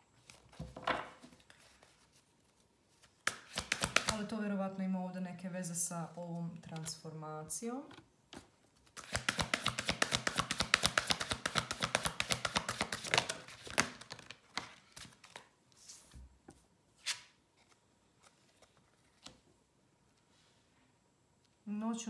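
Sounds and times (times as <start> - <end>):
cards being shuffled: 0.2 - 4.2, 8.8 - 16.2, 17.0 - 19.4.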